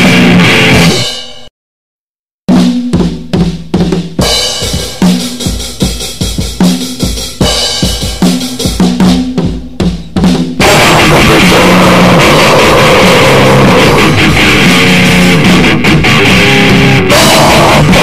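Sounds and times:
distorted band noise: 0.0s - 1.1s, 10.6s - 18.0s
drum kit kick and snare hits: 0.0s - 1.5s, 2.5s - 18.0s.

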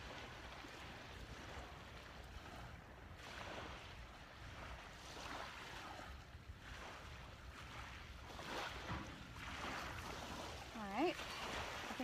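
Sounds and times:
faint surf washing in: 0.0s - 12.0s
low wind rumble on microphone: 0.0s - 12.0s.

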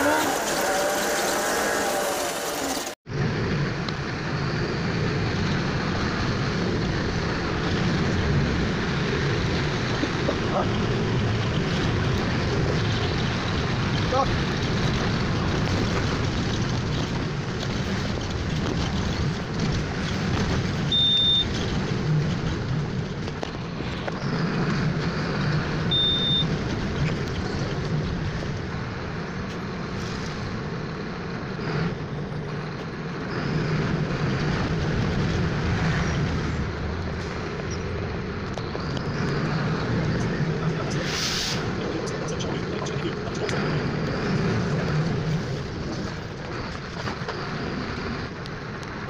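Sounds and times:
bus engine running: 0.0s - 49.0s
wet road noise: 0.0s - 49.0s
short high beeps: 25.9s - 26.5s.

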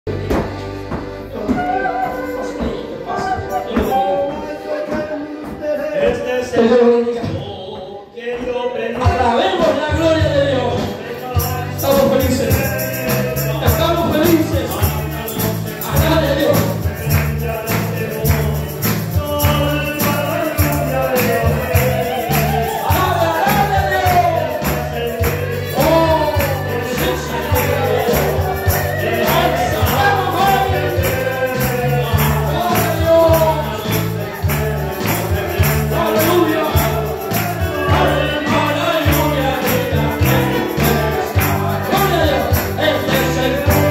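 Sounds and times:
voices singing praise song: 0.1s - 43.9s
bass and drums beat: 8.9s - 43.9s
tambourine shaking: 9.4s - 43.9s.

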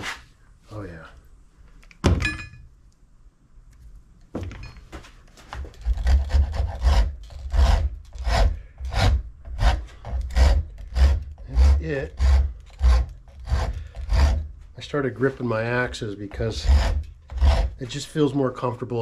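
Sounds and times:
metallic clink: 2.2s - 2.7s
hand rasp on wood: 5.8s - 14.6s, 16.3s - 18.0s.

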